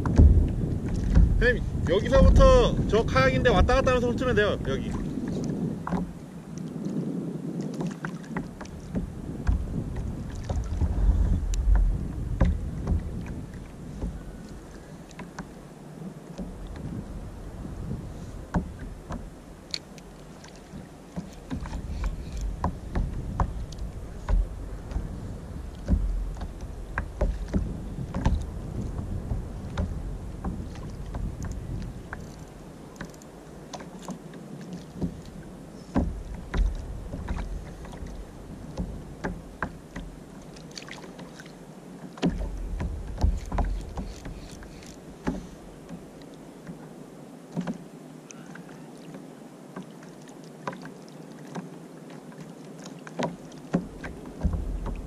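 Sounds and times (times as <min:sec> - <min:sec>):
low rumble: 0:00.0 - 0:04.1, 0:09.5 - 0:14.3
short knocks and splashes: 0:00.0 - 0:06.2, 0:07.6 - 0:15.6, 0:16.3 - 0:46.8, 0:47.5 - 0:47.8, 0:48.4 - 0:55.0
waves lapping against kayak hull: 0:00.0 - 0:55.0.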